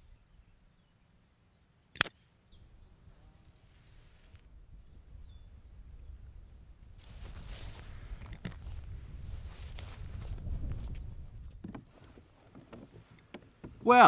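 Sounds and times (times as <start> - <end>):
birds chirping: 0.0 - 14.0
footsteps through grass: 7.0 - 13.0.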